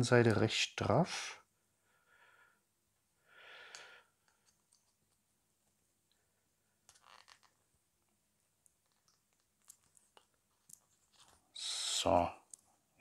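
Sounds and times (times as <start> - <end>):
soft breath: 1.8 - 4.4.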